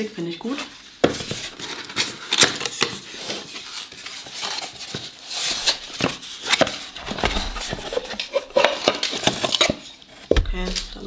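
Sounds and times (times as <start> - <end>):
paper packing rustling: 0.4 - 11.0
cardboard flaps scraping: 3.1 - 11.0.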